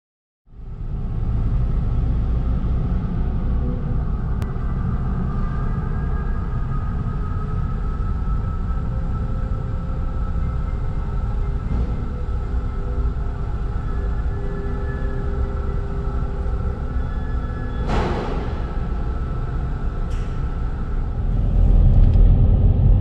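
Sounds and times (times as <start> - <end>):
humming tones: 0.5 - 23.0
car rumbling on deck: 17.7 - 23.0.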